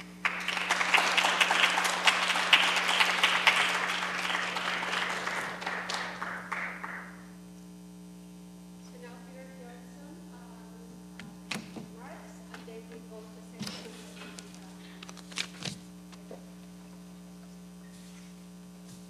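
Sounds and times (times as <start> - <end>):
audience applauding: 0.0 - 7.2
steady electrical hum: 0.0 - 19.0.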